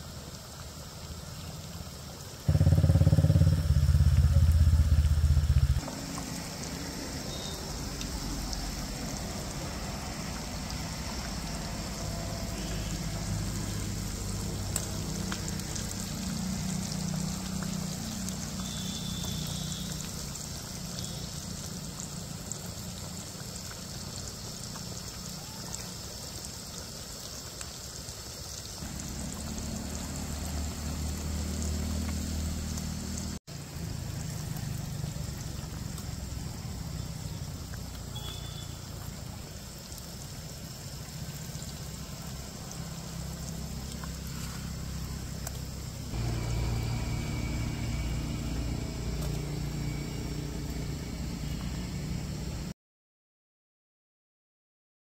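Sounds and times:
food sizzling in hot oil: 0:00.0 - 0:52.7
low hum: 0:02.5 - 0:06.6, 0:45.9 - 0:52.6.

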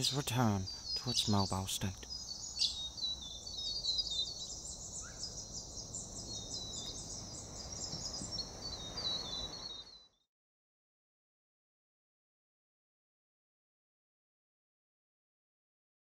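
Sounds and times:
small birds chirping: 0:00.0 - 0:10.3.

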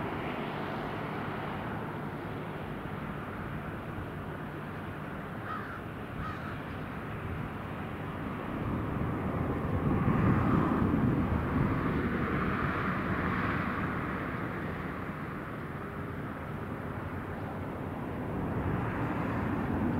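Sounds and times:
propeller plane engine droning: 0:00.0 - 0:19.9.

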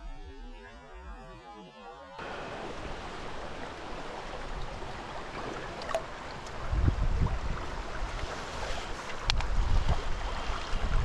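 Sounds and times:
river water rushing: 0:02.2 - 0:11.0
wind buffeting microphone: 0:02.2 - 0:11.0.

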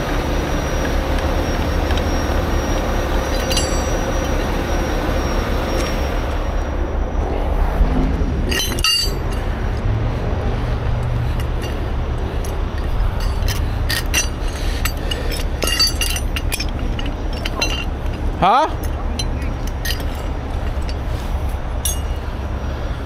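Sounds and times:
low engine rumble: 0:00.0 - 0:23.0
sharp metallic clinks: 0:00.4 - 0:06.7, 0:08.5 - 0:09.8, 0:11.3 - 0:22.4
chain and hook clinking: 0:02.1 - 0:04.8, 0:08.5 - 0:09.5, 0:11.3 - 0:22.2.

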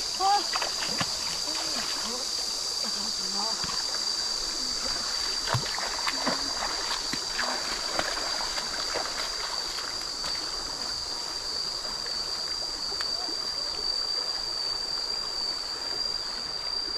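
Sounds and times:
stream water flowing: 0:00.0 - 0:16.9
splashy steps in muddy water: 0:05.4 - 0:10.6.

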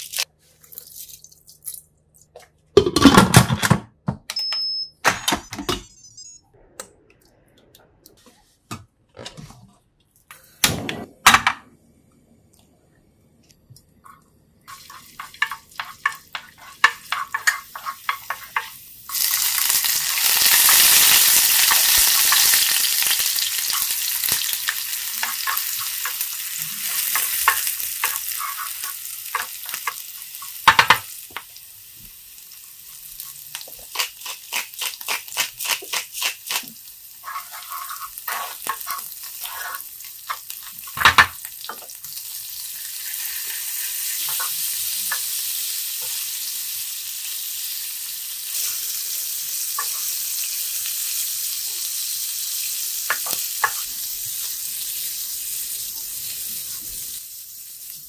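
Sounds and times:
oil frying in a pan: 0:14.7 - 0:58.0.

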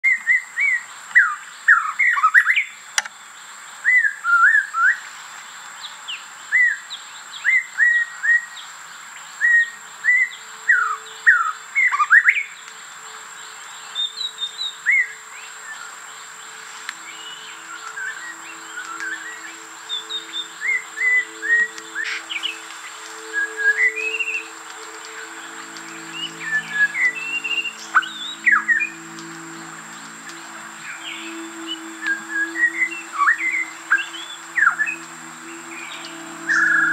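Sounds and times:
bird whistling calls: 0:16.5 - 0:36.9.

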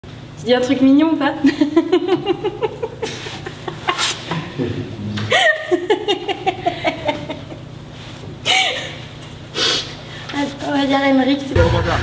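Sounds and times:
woman laughing hard: 0:01.4 - 0:04.2, 0:05.3 - 0:07.7, 0:08.4 - 0:09.1.

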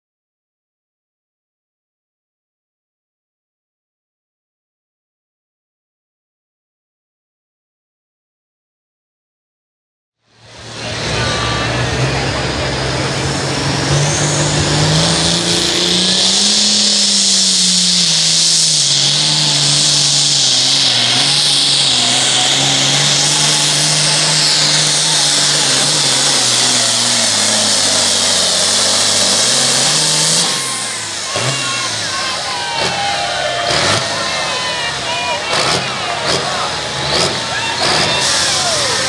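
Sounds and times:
tractor diesel engine under load: 0:10.2 - 0:39.0
loud high hiss: 0:14.3 - 0:39.0.

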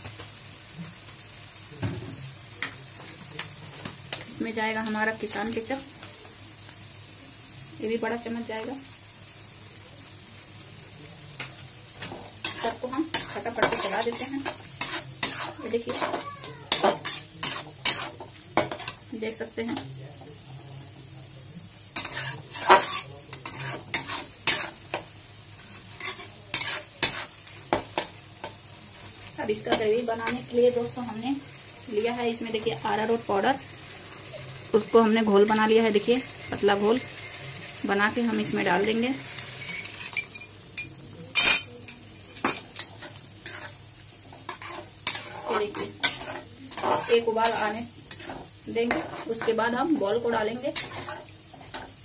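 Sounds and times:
light sizzle: 0:00.0 - 0:52.0
spatula scraping metal pan: 0:12.4 - 0:19.0, 0:22.0 - 0:25.0, 0:25.7 - 0:28.1, 0:42.2 - 0:43.8, 0:44.4 - 0:51.8.

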